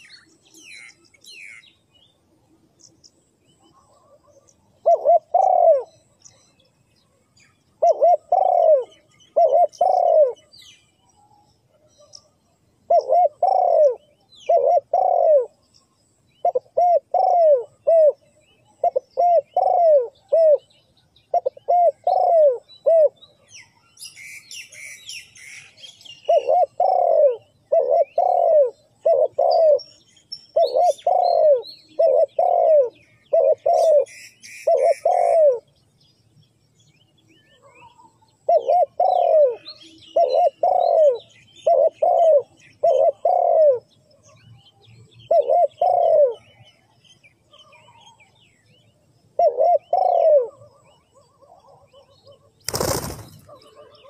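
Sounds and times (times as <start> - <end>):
dove cooing: 3.8 - 6.1, 7.8 - 10.5, 12.9 - 15.6, 16.4 - 23.2, 26.1 - 30.0, 30.6 - 35.7, 38.4 - 44.3, 45.2 - 46.8, 49.4 - 54.0.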